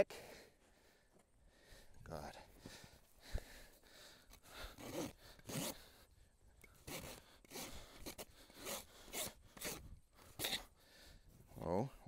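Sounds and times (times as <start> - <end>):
hoof rasp scraping: 4.6 - 6.0, 6.6 - 10.8.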